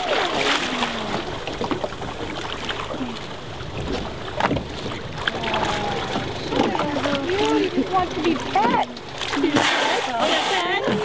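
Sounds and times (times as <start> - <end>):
water lapping against boat: 0.0 - 11.0
small splashes and ticks: 3.9 - 9.6.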